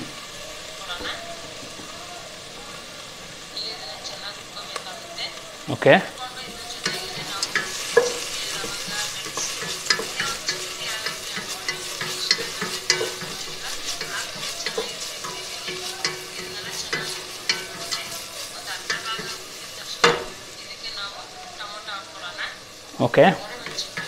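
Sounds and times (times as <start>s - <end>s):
food sizzling in a pot: 0.0s - 24.0s
spatula scraping and knocking pot: 6.5s - 20.4s, 23.5s - 24.0s.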